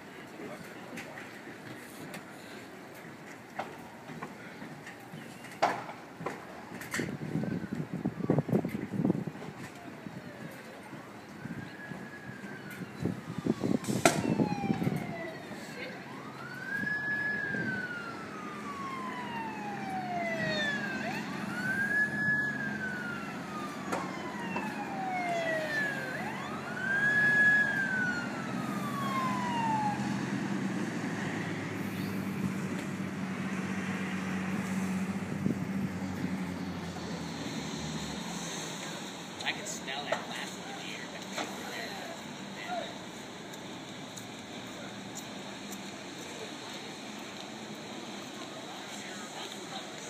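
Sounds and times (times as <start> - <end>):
emergency vehicle siren wailing: 0.5 - 50.0
low engine hum: 11.8 - 39.6.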